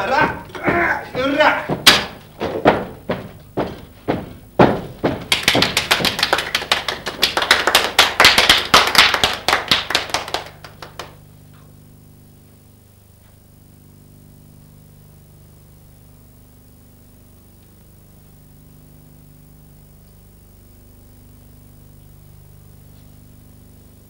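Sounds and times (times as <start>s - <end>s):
thuds: 0.0s - 6.2s
hand clapping: 0.0s - 11.2s
faint low hum: 0.0s - 24.0s.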